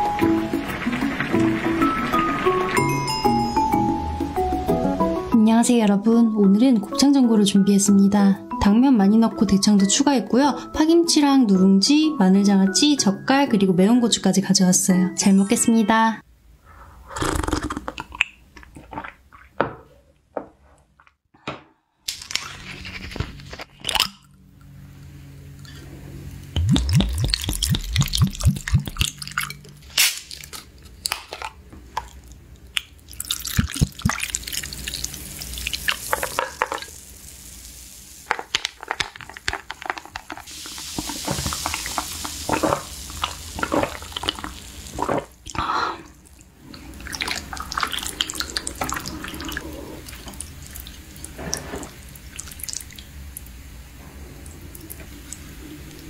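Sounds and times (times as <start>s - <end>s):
liquid glugging from glass bottle: 26.6s - 29.7s, 33.2s - 34.3s
sipping and swallowing: 26.6s - 29.8s, 33.1s - 34.7s, 41.7s - 53.0s.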